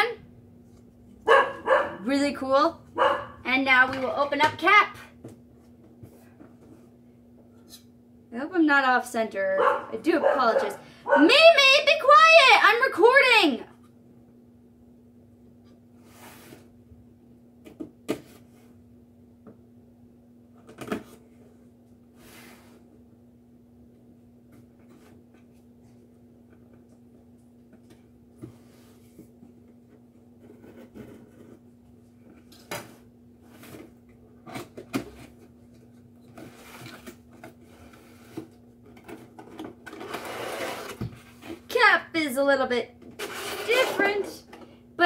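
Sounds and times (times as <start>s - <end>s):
faint steady hum: 0.0s - 45.0s
cardboard box sliding on table: 16.0s - 16.7s, 40.0s - 41.0s.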